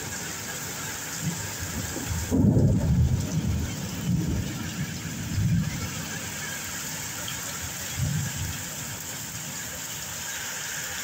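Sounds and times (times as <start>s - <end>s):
heavy rain falling: 0.0s - 11.0s
low thunder rumbles: 1.2s - 6.4s, 7.8s - 9.4s.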